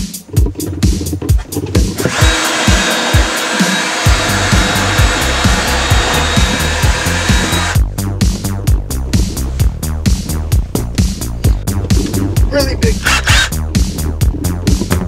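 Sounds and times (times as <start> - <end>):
background music with steady beat: 0.0 - 15.0
electric drill whining: 2.0 - 7.8, 13.0 - 13.6.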